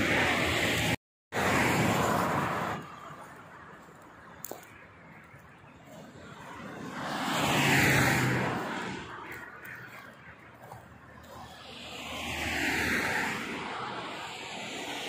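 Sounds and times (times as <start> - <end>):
vehicle approaching: 0.0 - 15.0
vehicle passing by: 5.8 - 15.0.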